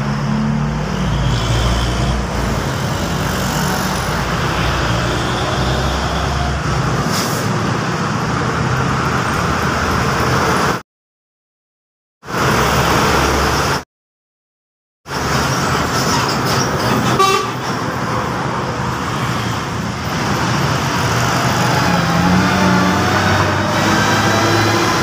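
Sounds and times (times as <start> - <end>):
traffic driving past: 0.0 - 10.8, 15.1 - 25.0
short horn toot: 17.1 - 17.6.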